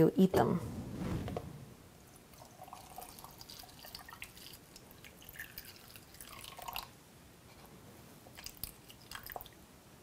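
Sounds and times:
liquid trickling into jar: 2.3s - 6.9s, 8.4s - 9.5s.

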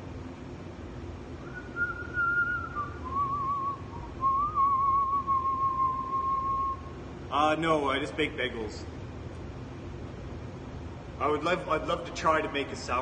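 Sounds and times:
steady low hum: 0.0s - 13.0s
man whistling a tune: 1.4s - 6.9s.

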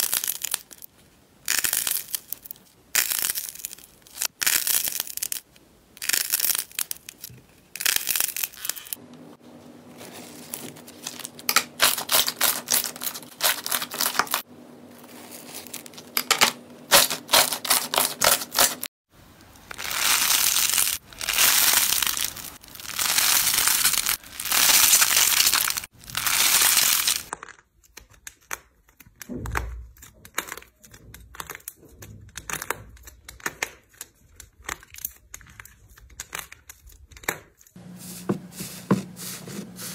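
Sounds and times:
dried clay crust cracking: 0.0s - 9.0s, 9.9s - 16.3s, 19.5s - 37.8s
slime crackling and squishing: 0.0s - 9.0s, 10.0s - 16.2s, 19.5s - 37.7s
crunchy slime stretching: 19.6s - 27.7s.

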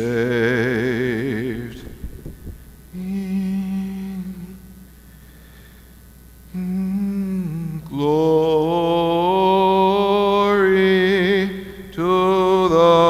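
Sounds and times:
person humming a low note: 0.0s - 4.8s, 6.5s - 8.3s.

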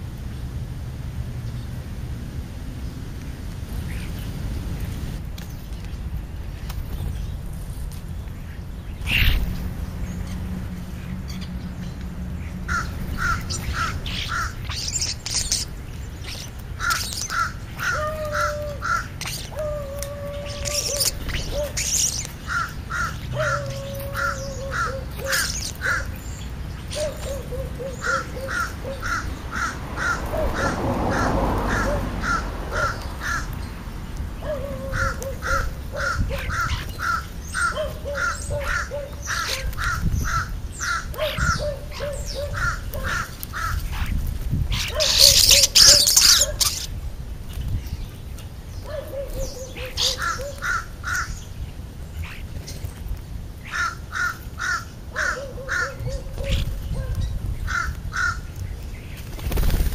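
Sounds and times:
crows cawing: 12.6s - 15.1s, 16.3s - 26.2s, 27.0s - 33.6s, 34.5s - 43.9s, 50.0s - 51.4s, 53.6s - 56.0s, 57.6s - 58.5s.

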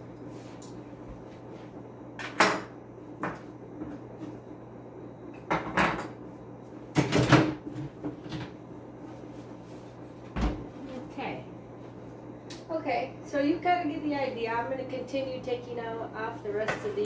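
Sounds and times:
objects clunking on countertop: 5.4s - 6.2s.

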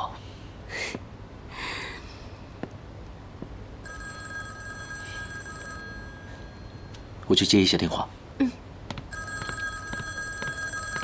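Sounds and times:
telephone ringing: 3.8s - 7.0s, 9.1s - 11.0s.

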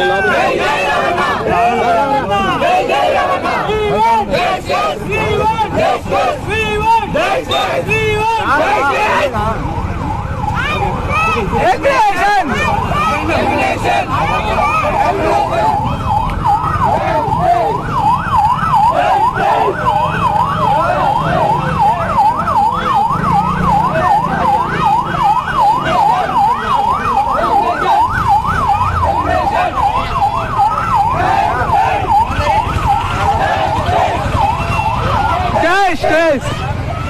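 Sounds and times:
crowd noise: 0.0s - 37.0s
electronic siren yelping: 9.9s - 36.8s.

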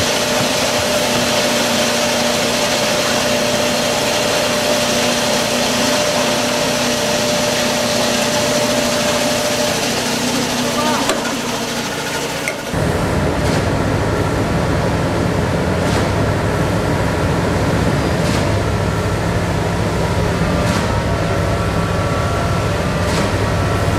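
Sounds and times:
construction machinery engine drone: 0.0s - 23.9s.

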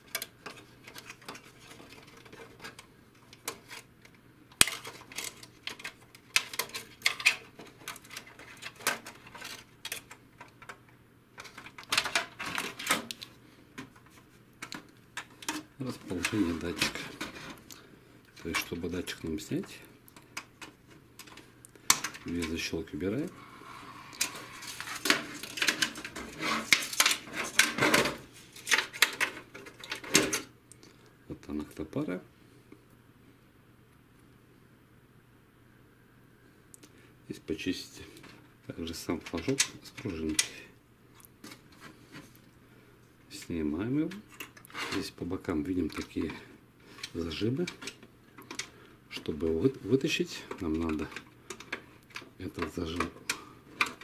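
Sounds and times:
plastic clicks and scrapes: 0.0s - 3.9s, 4.6s - 10.8s, 24.1s - 30.5s
knocks and rustles: 24.2s - 30.5s.

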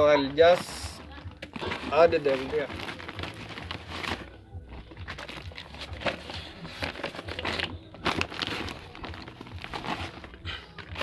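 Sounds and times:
plastic sack rustling: 0.0s - 11.0s.

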